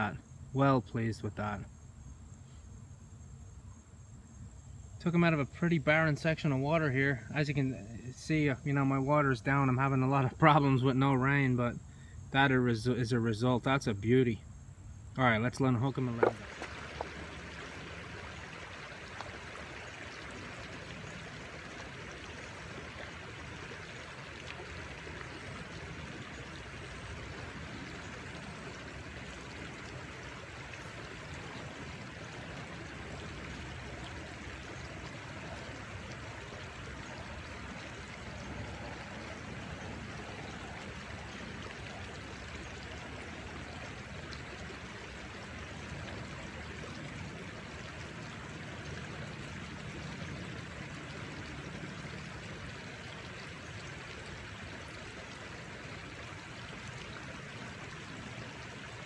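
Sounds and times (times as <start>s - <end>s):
river water rushing: 16.0s - 59.0s.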